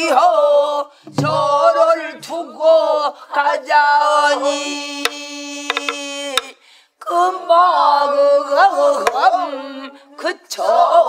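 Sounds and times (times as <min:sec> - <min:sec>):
barrel drum strokes: 0:01.1 - 0:01.8
group singing held notes: 0:01.1 - 0:05.2, 0:07.0 - 0:11.0.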